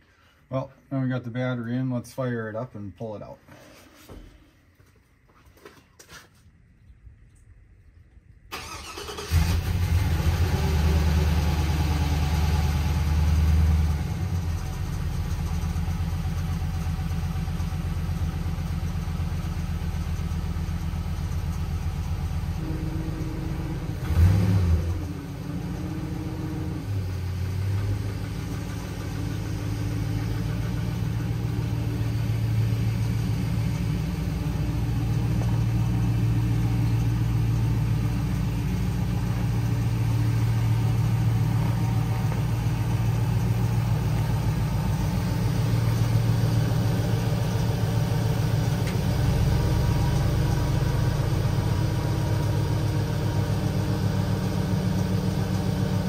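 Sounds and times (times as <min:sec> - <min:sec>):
car engine starting and idling: 0:08.2 - 0:56.0
engine revving: 0:08.5 - 0:17.1, 0:22.2 - 0:56.0.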